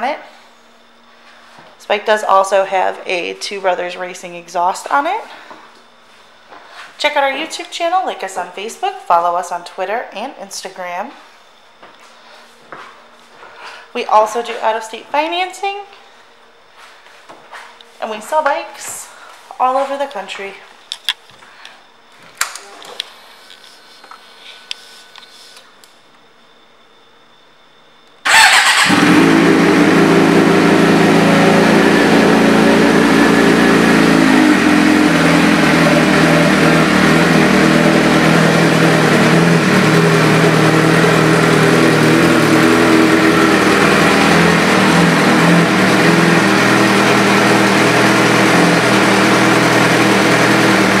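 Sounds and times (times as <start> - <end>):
motorcycle engine idling: 28.3 - 51.0.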